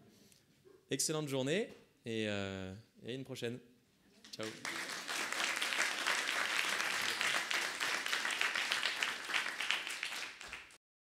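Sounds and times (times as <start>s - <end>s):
audience applauding: 4.4s - 10.8s.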